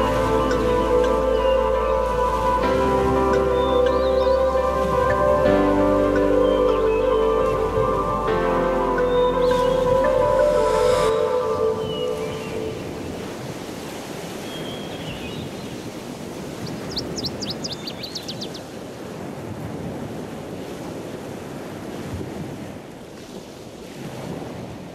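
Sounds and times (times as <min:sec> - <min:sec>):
high chirps: 0:00.0 - 0:12.8
ocean surf washing: 0:00.0 - 0:24.9
wind noise: 0:00.0 - 0:24.9.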